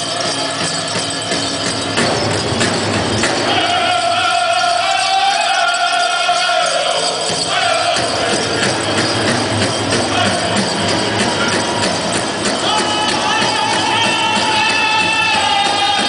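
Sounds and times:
ankle bells jingling: 0.0 - 16.0
steady drum beat: 0.0 - 16.0
men singing in high voices: 3.3 - 9.3, 9.9 - 11.0, 12.6 - 16.0.

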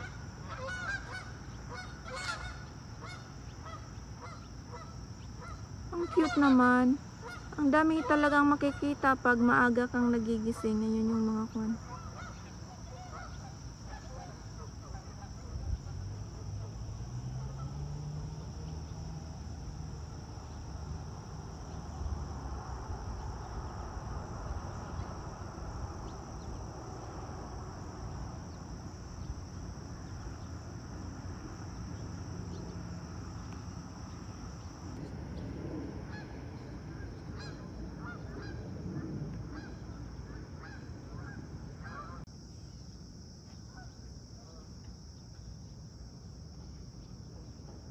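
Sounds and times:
distant honking waterfowl: 0.0 - 19.1, 36.0 - 42.3
wind rumble on microphone: 15.0 - 16.2, 18.4 - 32.8, 33.4 - 42.2.

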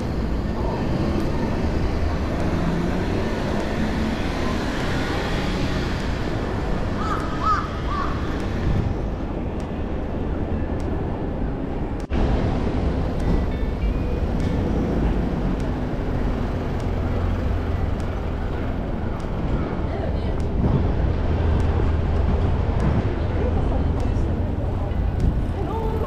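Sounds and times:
traffic: 0.0 - 26.0
urban bustle: 0.0 - 26.0.

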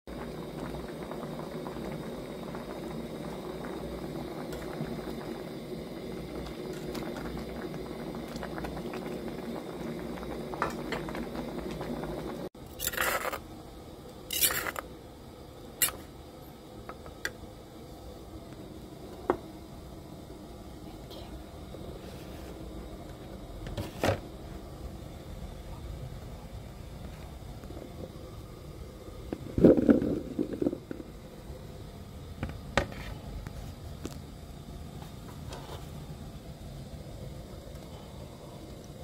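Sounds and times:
soup boiling in a pot: 0.1 - 39.0.

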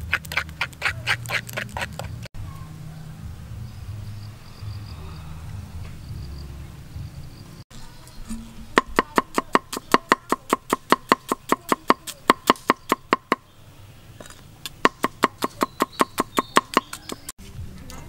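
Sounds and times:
cleaver knocking on wooden board: 8.3 - 13.4, 14.8 - 17.3.

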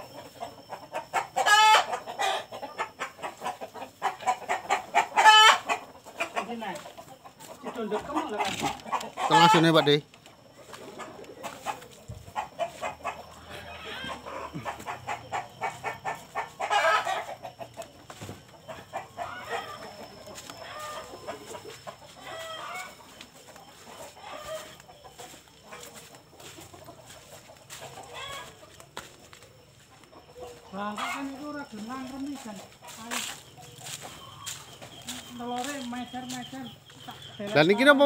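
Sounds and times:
chickens clucking and calling: 0.0 - 38.0.

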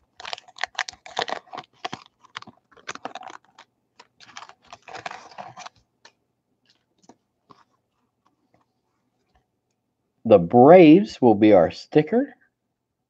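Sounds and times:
wax-paper wrapper crinkling: 0.0 - 9.4.

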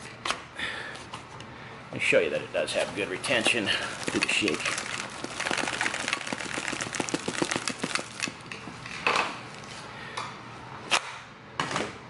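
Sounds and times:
magazine pouch rattling: 3.3 - 9.7.

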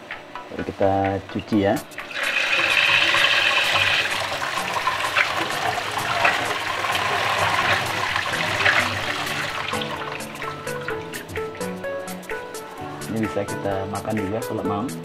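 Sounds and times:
tap water running into strainer: 1.9 - 11.8
water splashing as hand stirs: 2.0 - 11.2.

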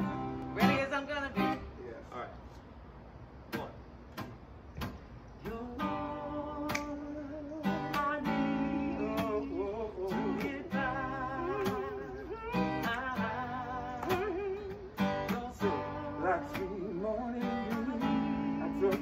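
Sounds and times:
acoustic guitar playing: 0.0 - 1.8, 3.0 - 19.0
wordless voice singing: 0.0 - 1.8, 5.4 - 19.0
finger snaps: 6.6 - 7.0, 12.8 - 13.2.

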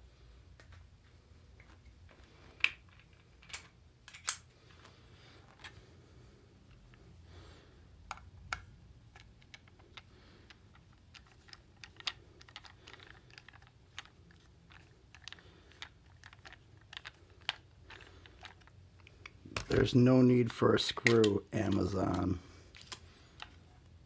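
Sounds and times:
screwdriver and plastic clicks: 21.0 - 23.6.

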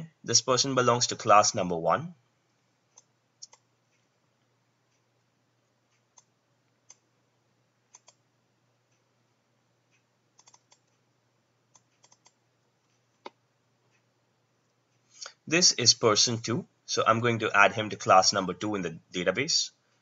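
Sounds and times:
computer mouse clicking: 2.9 - 4.1, 5.9 - 7.1, 7.9 - 8.2, 9.9 - 11.0, 11.7 - 14.0.

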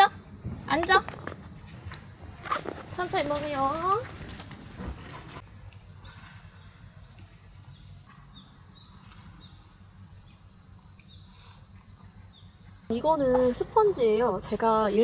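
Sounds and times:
high-pitched insect trill: 6.4 - 15.0.

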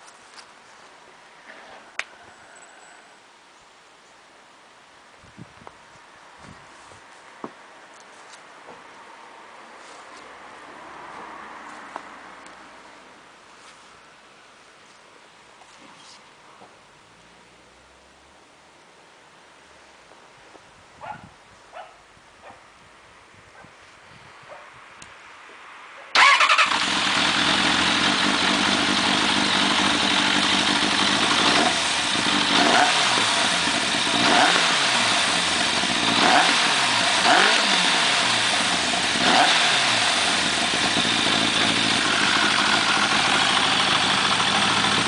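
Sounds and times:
motorcycle engine revving: 26.2 - 45.0
motorcycle engine starting: 26.2 - 45.0
motorcycle engine idling loudly: 26.6 - 45.0.

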